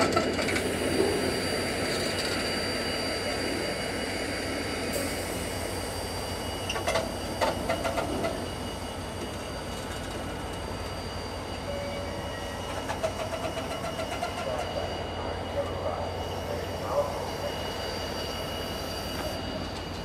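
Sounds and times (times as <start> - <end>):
sharp clicks of train wheels: 0.0 - 2.5, 6.4 - 10.7, 12.6 - 14.8
freight train rumbling: 0.0 - 20.0.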